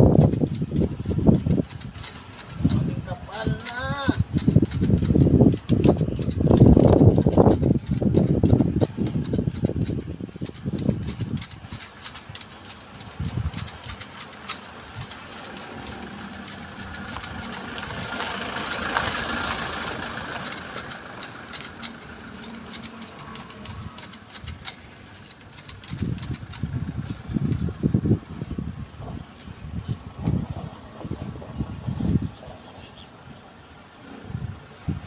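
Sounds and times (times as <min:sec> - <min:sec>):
hand shears snipping branches: 0:00.0 - 0:32.2
engine: 0:00.0 - 0:35.0.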